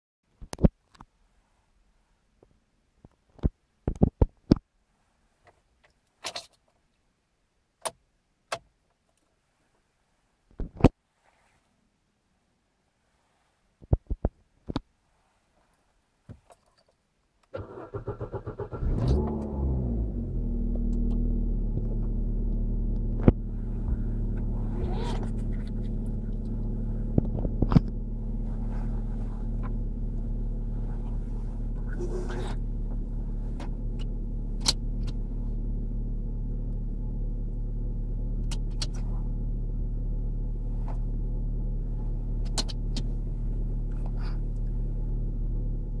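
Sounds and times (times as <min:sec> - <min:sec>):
car engine starter cranking: 0:17.5 - 0:20.2
car engine idling: 0:17.6 - 0:46.0.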